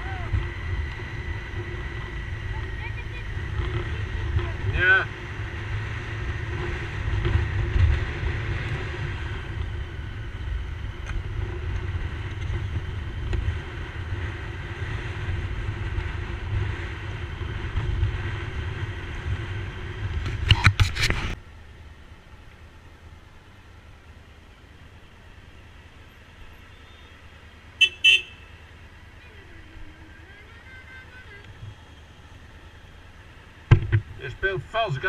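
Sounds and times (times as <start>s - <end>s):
motorcycle engine: 0.0s - 35.0s
wind rumble and road noise: 0.0s - 35.0s
sharp knocks: 33.7s - 34.1s.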